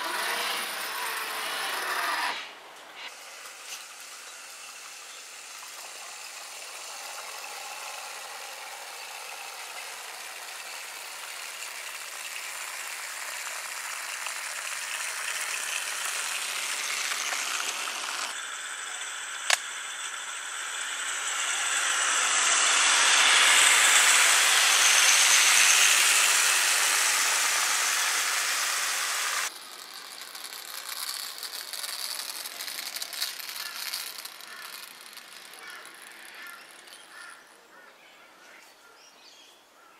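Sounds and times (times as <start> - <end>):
model tram rattling on rails: 3.2 - 18.4, 20.7 - 37.3
sharp click: 19.4 - 19.7.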